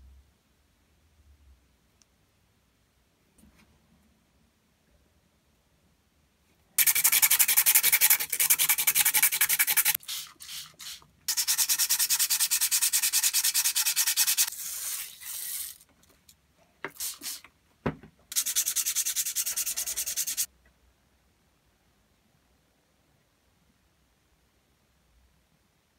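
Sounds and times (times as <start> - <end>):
metal scratching on sandpaper: 6.8 - 15.8, 18.3 - 20.5.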